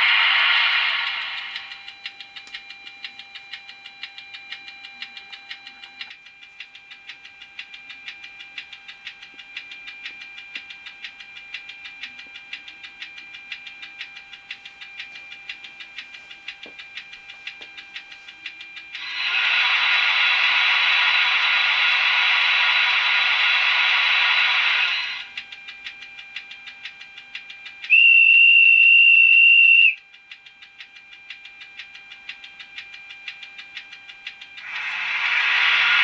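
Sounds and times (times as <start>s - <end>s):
rapid even ticking: 0.0s - 27.9s
steady high whine: 0.0s - 36.0s.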